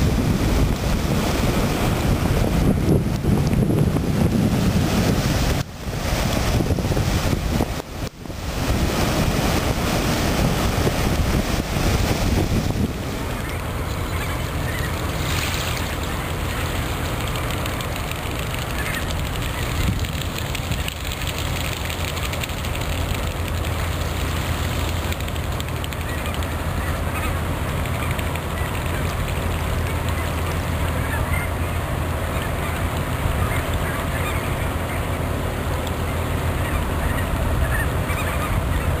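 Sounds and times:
ship engine low drone: 0:00.0 - 0:39.0
waterbird calls: 0:12.8 - 0:39.0.

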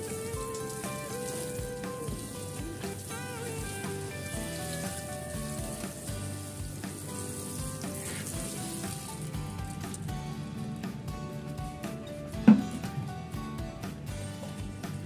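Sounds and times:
watering can spraying onto soil: 0:00.0 - 0:10.1
soft background music: 0:00.0 - 0:15.0.

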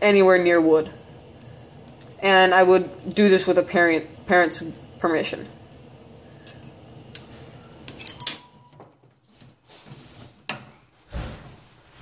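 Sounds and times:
gas burner hissing: 0:00.0 - 0:08.5
dull thump: 0:11.1 - 0:11.6.

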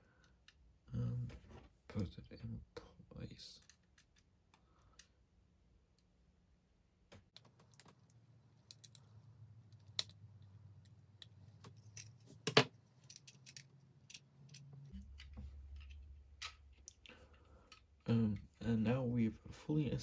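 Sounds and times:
plastic parts clicking: 0:07.3 - 0:18.5.

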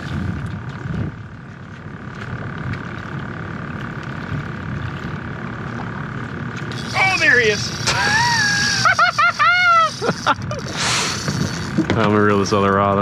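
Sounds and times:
wind buffeting the microphone: 0:00.0 - 0:03.2
faint steady hum: 0:00.0 - 0:13.0.

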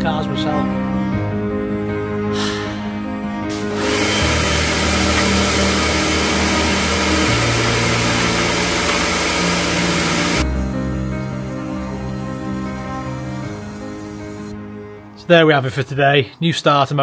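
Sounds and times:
pressure washer spraying water: 0:03.5 - 0:10.4, 0:13.2 - 0:14.5.

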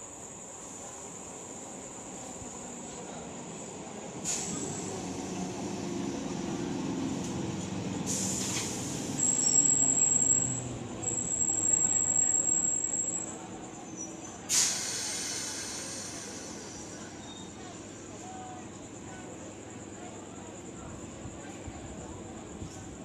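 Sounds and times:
train wheels rumbling on track: 0:00.0 - 0:20.0
high steady squeal: 0:09.2 - 0:14.1
burst of hissing: 0:14.5 - 0:17.0.

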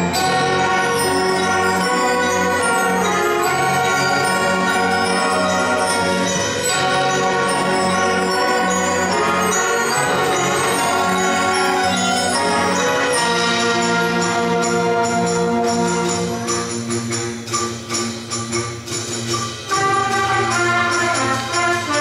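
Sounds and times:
concert band playing: 0:00.0 - 0:22.0
ringing mallet percussion: 0:00.0 - 0:22.0.

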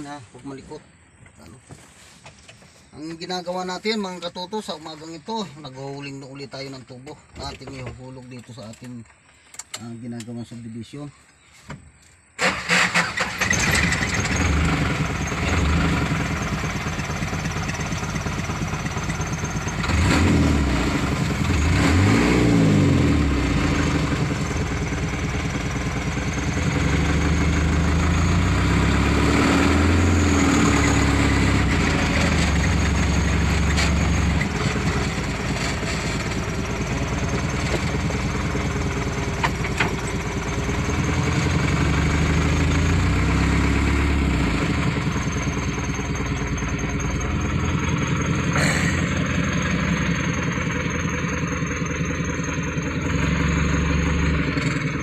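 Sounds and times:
truck engine revving: 0:12.4 - 0:55.0.

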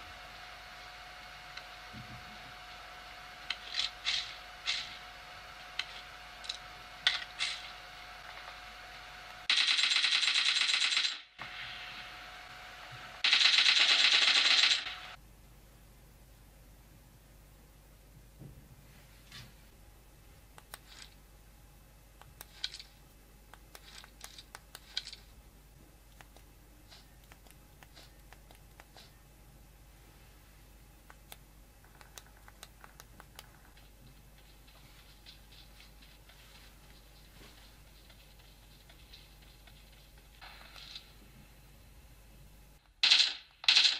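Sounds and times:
game scuffs and clicks: 0:20.5 - 0:21.2, 0:22.2 - 0:25.4, 0:26.0 - 0:29.2, 0:31.0 - 0:41.2.

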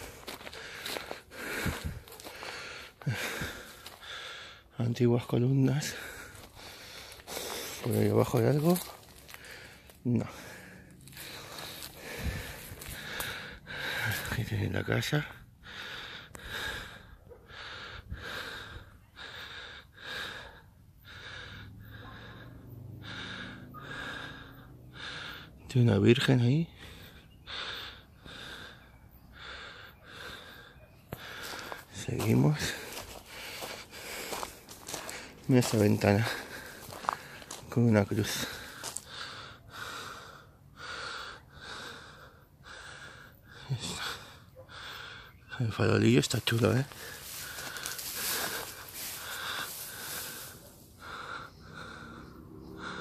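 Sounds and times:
heavy breathing: 0:00.0 - 0:53.0.

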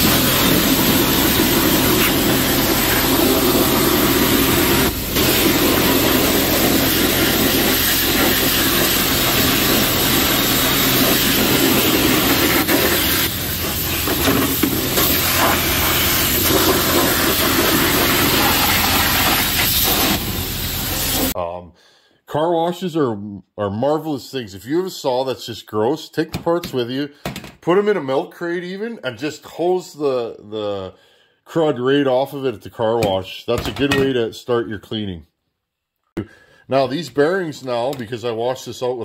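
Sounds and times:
pressure washer spraying water: 0:00.0 - 0:21.4.

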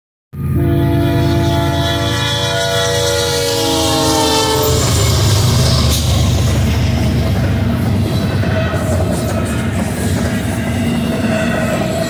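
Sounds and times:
locomotive air horn: 0:00.4 - 0:06.4
locomotive engines and wheels rumbling: 0:00.4 - 0:12.0.

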